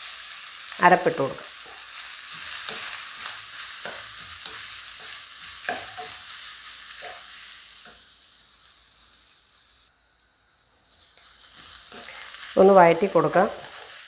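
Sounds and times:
oil sizzling: 0:00.0 - 0:14.0
spatula scraping and tapping a wok: 0:01.4 - 0:08.2.

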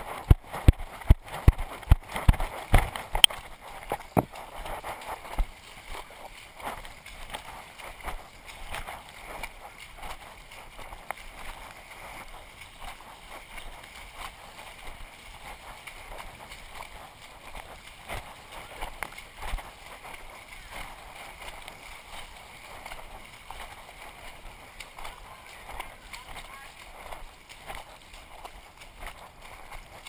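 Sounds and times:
water sloshing and splashing: 0:00.0 - 0:30.0.

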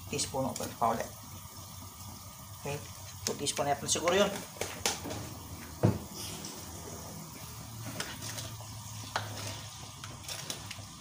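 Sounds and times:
sauce sizzling in a wok: 0:00.0 - 0:11.0.

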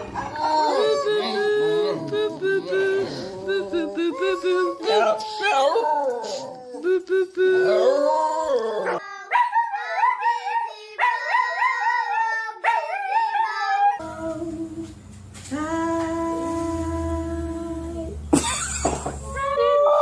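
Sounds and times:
dogs howling: 0:00.0 - 0:07.0, 0:07.6 - 0:14.2, 0:19.4 - 0:20.0.

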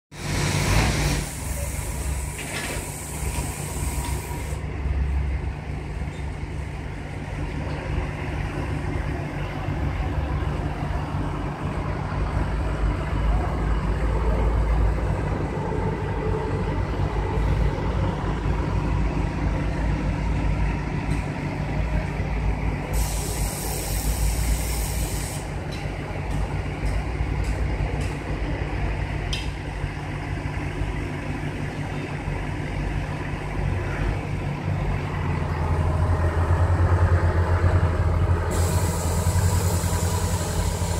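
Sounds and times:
diesel engine running: 0:00.1 - 0:40.9
air hissing: 0:00.2 - 0:04.6, 0:22.9 - 0:25.5, 0:38.5 - 0:40.9.

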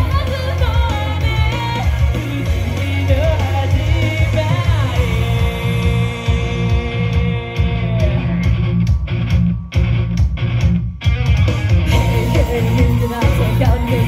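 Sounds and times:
person singing: 0:00.0 - 0:08.6, 0:11.8 - 0:14.0
pop song through loudspeakers: 0:00.0 - 0:10.4, 0:11.4 - 0:14.0.

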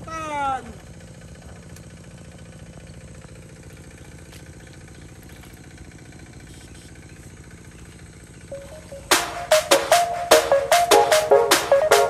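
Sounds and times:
small pump engine running: 0:00.7 - 0:08.6.

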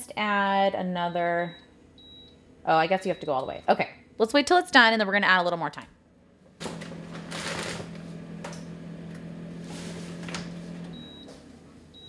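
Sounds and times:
air fryer fan humming: 0:06.2 - 0:12.0.

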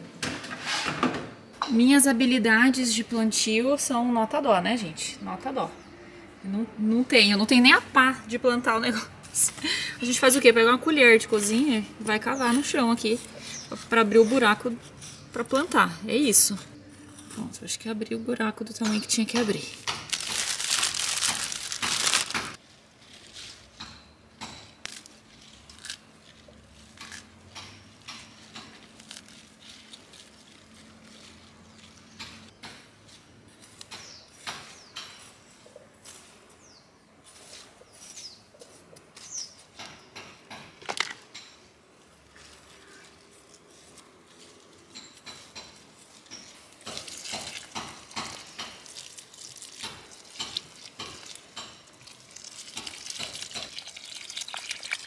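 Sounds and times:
spoon and hands working soil: 0:08.8 - 0:17.9, 0:18.7 - 0:24.2, 0:24.8 - 0:39.8, 0:42.0 - 0:55.0
plastic bag crinkling: 0:19.6 - 0:23.8, 0:24.9 - 0:32.2, 0:46.1 - 0:55.0
hose water splashing on soil: 0:46.0 - 0:55.0.

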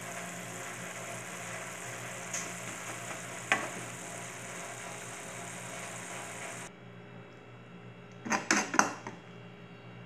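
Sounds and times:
food sizzling in a frying pan: 0:00.0 - 0:06.7.

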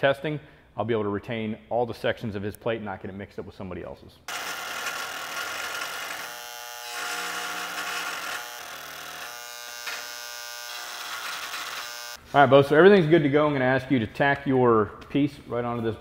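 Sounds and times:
rotary tool buzzing: 0:04.3 - 0:12.2.

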